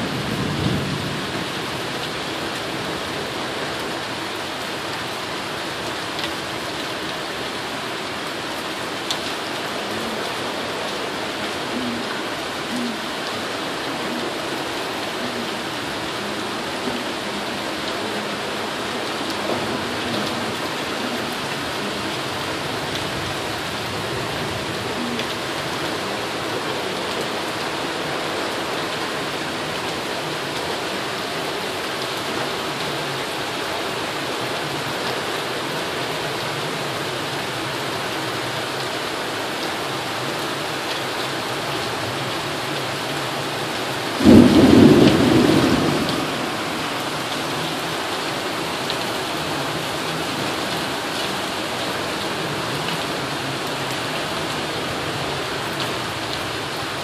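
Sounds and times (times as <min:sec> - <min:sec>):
steady rain: 0:00.0 - 0:57.0
thunderclap: 0:44.2 - 0:46.9.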